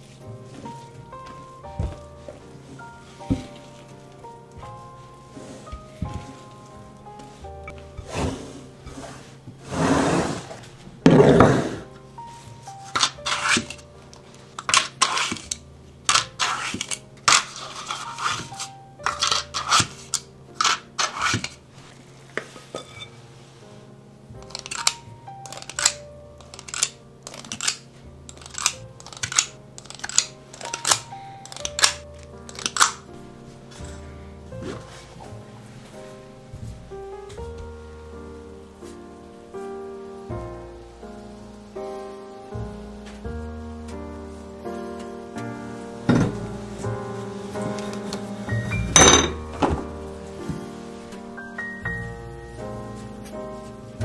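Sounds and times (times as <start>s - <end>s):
soft background music: 0.0s - 54.0s
batter dropping into paper liners: 24.4s - 33.0s.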